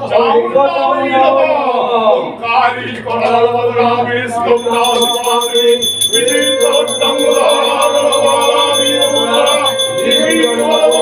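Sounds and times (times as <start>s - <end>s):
long held tone: 4.4s - 11.0s
hand bell ringing rapidly: 4.5s - 11.0s.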